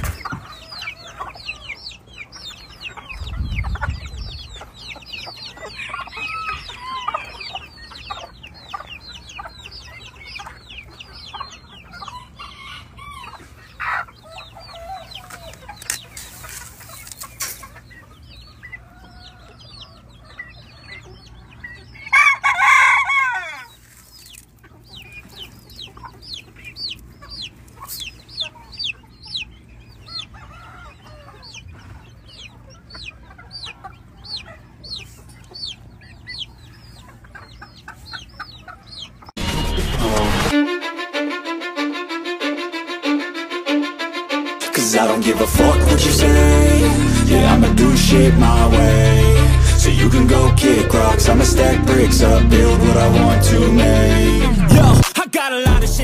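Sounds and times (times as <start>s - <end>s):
chickens clucking: 0.0s - 55.2s
rooster crowing: 5.7s - 7.5s, 12.1s - 13.4s, 14.2s - 15.6s, 22.1s - 23.7s.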